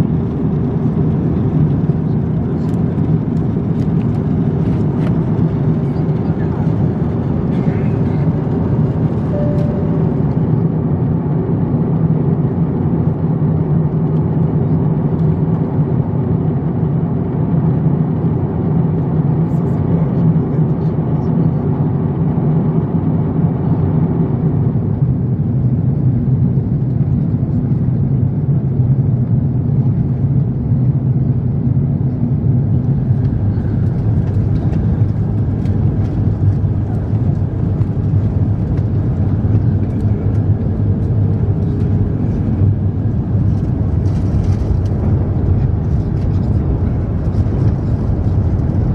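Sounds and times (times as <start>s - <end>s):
jet engine drone: 0.0s - 48.9s
rush of airflow: 32.2s - 48.9s.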